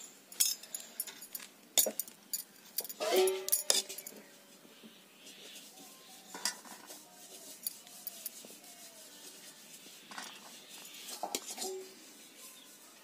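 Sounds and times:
metal clinks: 0.3s - 4.2s
spoon scraping rice in metal pot: 3.0s - 4.2s, 5.3s - 12.7s.

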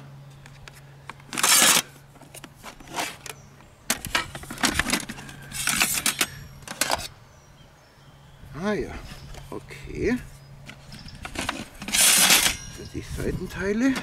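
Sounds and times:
metal plates scraping and clinking: 4.2s - 7.0s, 11.3s - 13.1s.

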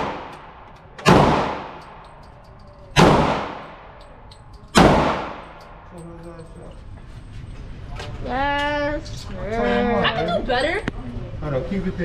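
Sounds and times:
pistol shots echoing indoors: 0.0s - 2.1s, 2.9s - 4.0s, 4.7s - 5.8s.

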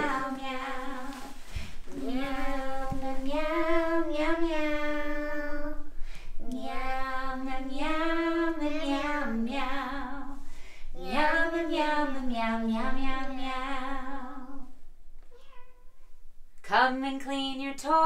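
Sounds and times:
person singing wordless tune: 11.0s - 14.7s.

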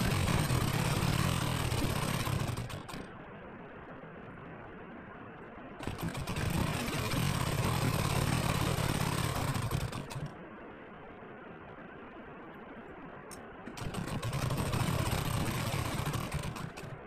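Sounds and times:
sewing machine stitching: 0.0s - 3.1s, 5.8s - 10.3s, 13.7s - 17.0s.

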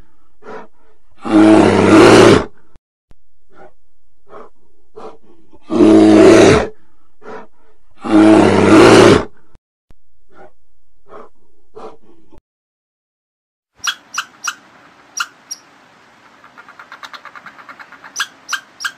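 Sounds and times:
bear roaring: 0.4s - 2.6s, 4.3s - 9.4s.

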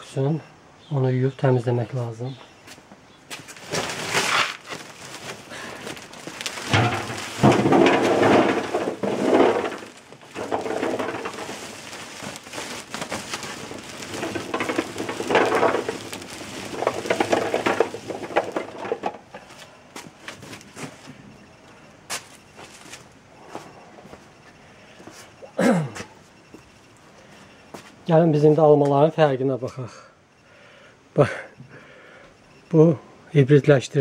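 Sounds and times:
apples clattering into metal basin: 3.6s - 19.5s.

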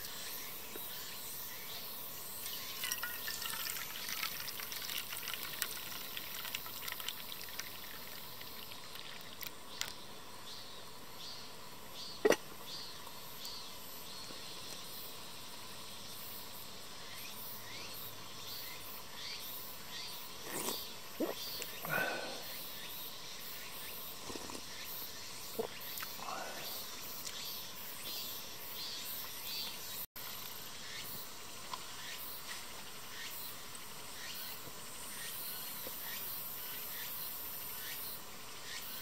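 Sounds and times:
water pouring into metal cup: 2.4s - 9.9s.

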